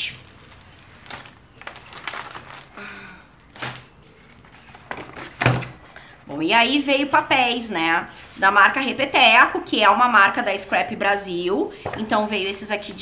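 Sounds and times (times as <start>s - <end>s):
paper sheets rustling: 0.0s - 2.8s, 3.4s - 5.9s.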